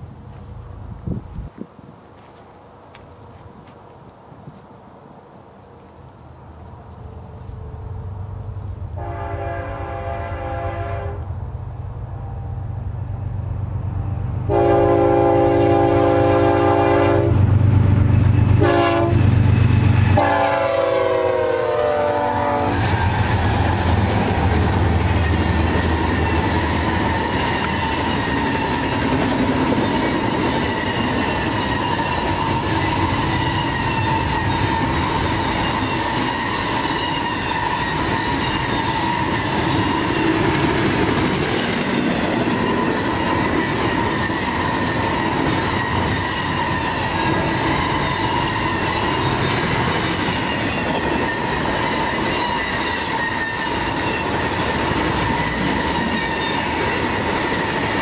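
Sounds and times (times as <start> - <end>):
locomotive air horn: 9.0 - 11.3, 14.5 - 17.4, 18.6 - 19.3, 20.1 - 22.8
train wheel clatter: 22.7 - 58.0
high ringing from wheels: 24.4 - 58.0.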